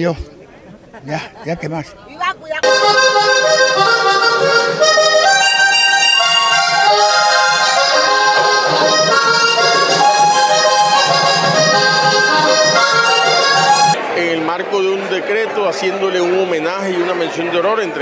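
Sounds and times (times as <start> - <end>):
button accordion playing lively tune: 2.6 - 14.0.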